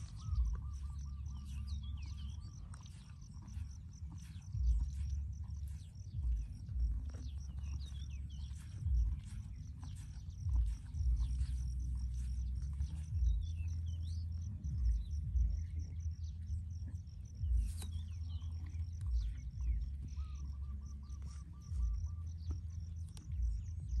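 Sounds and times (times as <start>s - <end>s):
birds chirping: 0.0s - 24.0s
insects calling: 0.0s - 24.0s
wind rumble on microphone: 0.0s - 24.0s.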